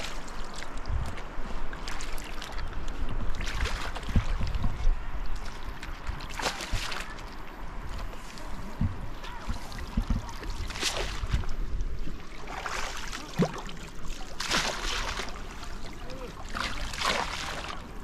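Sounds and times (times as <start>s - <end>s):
shallow water splashing: 0.0s - 18.0s.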